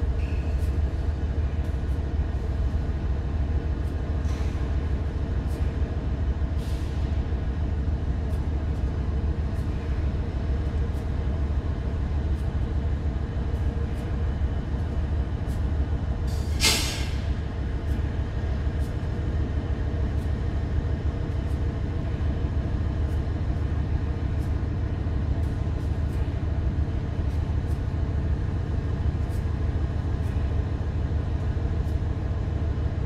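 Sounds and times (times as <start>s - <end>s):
diesel locomotive engines idling: 0.0s - 33.0s
air release hiss: 16.3s - 17.2s.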